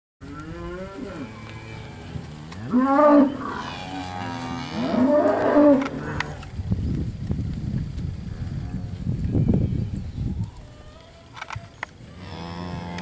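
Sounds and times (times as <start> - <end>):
steers mooing: 0.2 - 6.5, 12.2 - 13.0.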